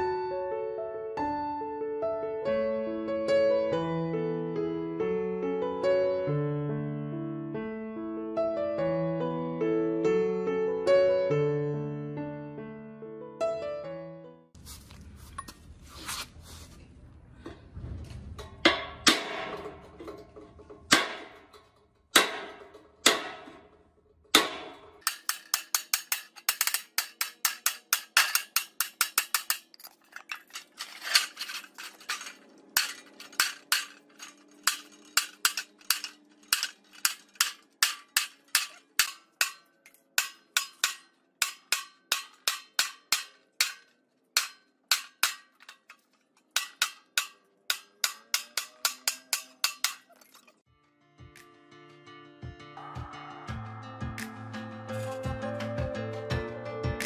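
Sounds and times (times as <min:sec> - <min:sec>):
metal sheet ringing: 0:18.3 - 0:50.2
hammer striking steel chisel: 0:18.6 - 0:50.1.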